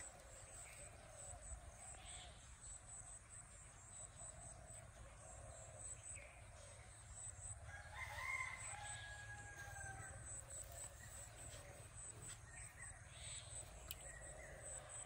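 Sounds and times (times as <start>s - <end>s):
faint high insect chirping: 0.0s - 15.0s
rooster crowing: 7.6s - 10.4s.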